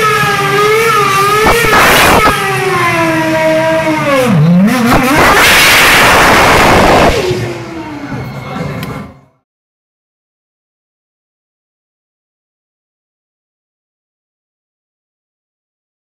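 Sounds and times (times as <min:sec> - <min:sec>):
racing car engine revving: 0:00.0 - 0:08.2.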